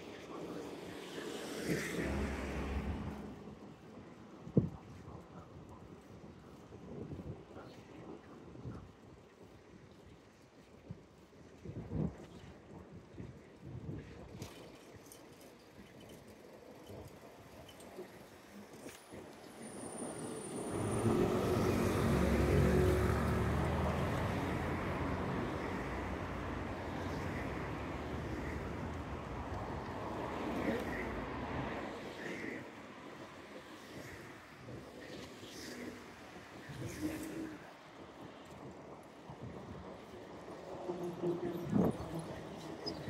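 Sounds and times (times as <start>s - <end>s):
road traffic noise: 0.2s - 3.7s, 19.0s - 37.7s
wind rumble on microphone: 1.9s - 43.0s
truck engine passing: 20.0s - 27.0s.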